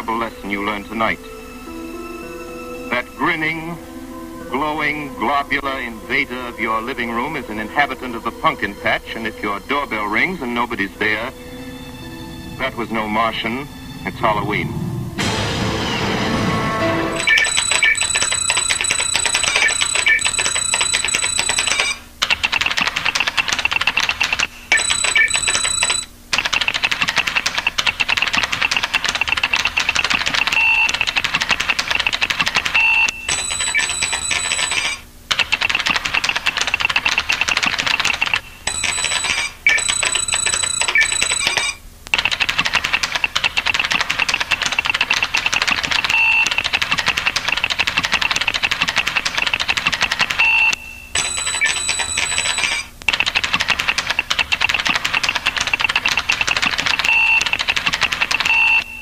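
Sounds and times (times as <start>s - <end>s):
high ringing tone: 17.1s - 22.0s, 24.7s - 26.1s, 32.8s - 35.0s, 37.9s - 41.8s, 50.4s - 52.9s
keyboard typing clicks: 17.2s - 58.9s.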